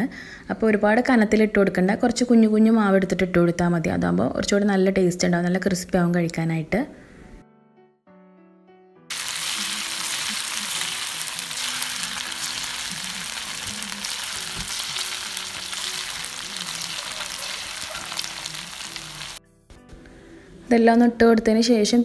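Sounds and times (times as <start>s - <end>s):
oil sizzling while deep-frying: 9.1s - 19.4s.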